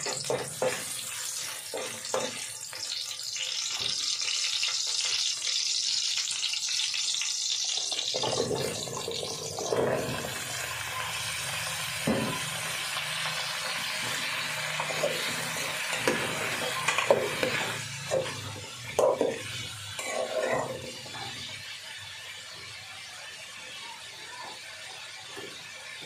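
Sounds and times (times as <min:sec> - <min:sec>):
squash sizzling in a pot: 0:00.0 - 0:26.0
metal spoon scraping a pot: 0:19.0 - 0:21.5.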